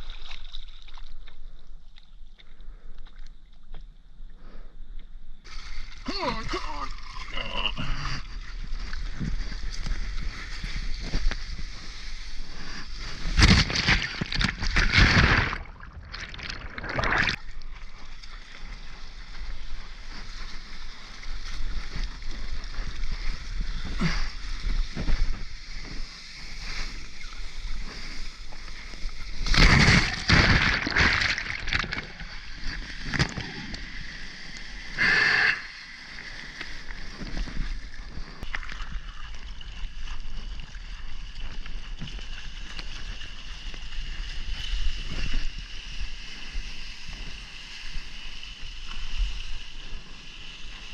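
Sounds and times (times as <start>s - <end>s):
water splashing around surfboard: 8.3s - 34.9s, 35.8s - 49.5s.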